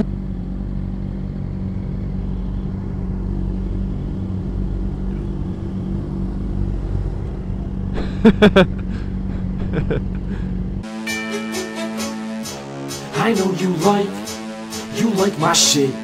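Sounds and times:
motorcycle engines idling: 0:00.0 - 0:10.8
engine throttle blips: 0:00.0 - 0:13.1.

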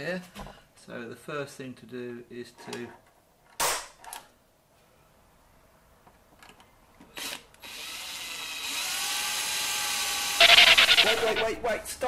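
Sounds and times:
cordless drill drilling into metal: 0:07.2 - 0:11.1.

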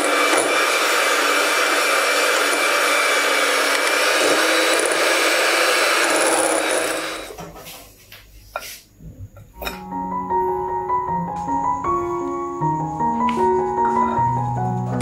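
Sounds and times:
electric hand mixer whipping cream: 0:00.0 - 0:07.4.

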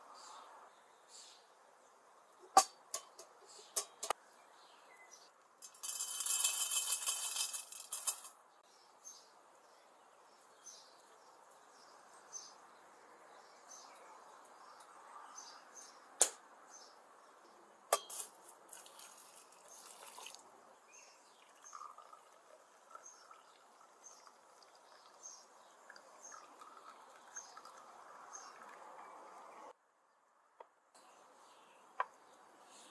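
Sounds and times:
liquid pouring: 0:18.4 - 0:20.6, 0:21.2 - 0:29.5
tea trickling into glass: 0:18.6 - 0:29.5.

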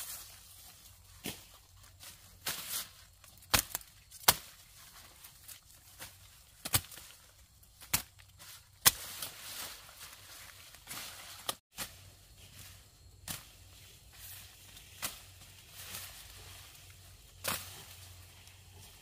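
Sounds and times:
vegetation rustling: 0:00.0 - 0:19.0
blade chopping vegetation: 0:03.4 - 0:04.6, 0:06.0 - 0:07.1, 0:08.8 - 0:09.4, 0:17.4 - 0:18.0.

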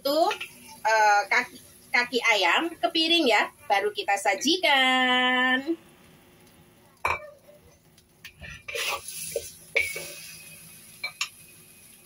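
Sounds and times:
metal spatula scraping a wok: 0:08.4 - 0:10.5.

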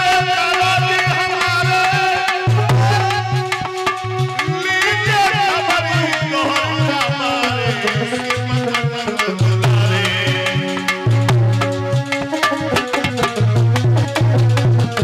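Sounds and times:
man singing: 0:00.0 - 0:11.3
tabla drum strokes: 0:00.0 - 0:15.0.

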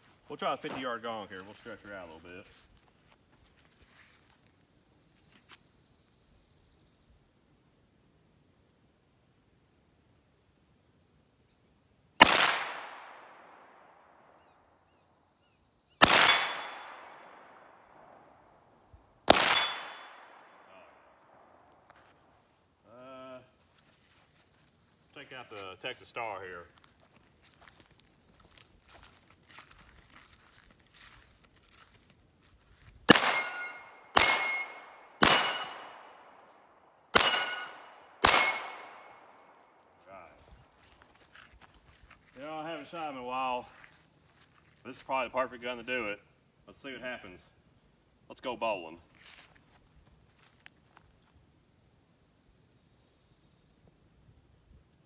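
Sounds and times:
pistol shots echoing: 0:12.2 - 0:14.3, 0:16.0 - 0:18.3, 0:19.2 - 0:21.3, 0:33.1 - 0:36.5, 0:37.1 - 0:39.4
steel plate ringing when hit: 0:16.2 - 0:17.0, 0:19.4 - 0:20.2, 0:33.1 - 0:35.8, 0:37.2 - 0:39.1.

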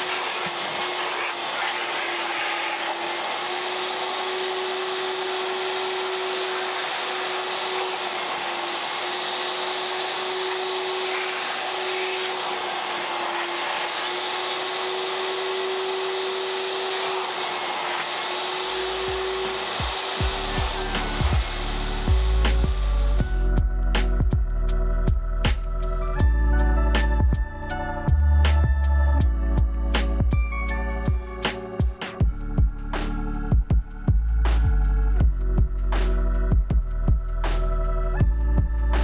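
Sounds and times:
vacuum cleaner running: 0:00.0 - 0:23.6.

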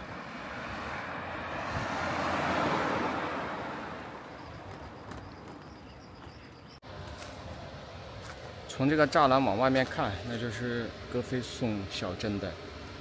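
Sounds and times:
vehicle passing by: 0:00.0 - 0:05.2.

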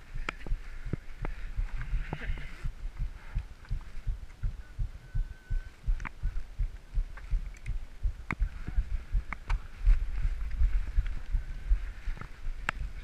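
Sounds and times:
sharp clicks: 0:05.7 - 0:08.6.

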